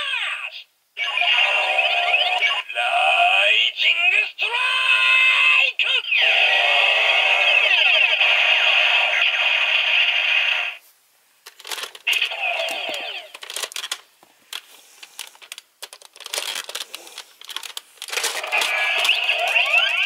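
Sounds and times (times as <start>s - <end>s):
electronic toy sound effect: 1.0s - 2.7s, 5.8s - 10.8s, 12.1s - 13.4s, 18.2s - 20.0s
plastic toy clicks and rattles: 11.4s - 20.0s.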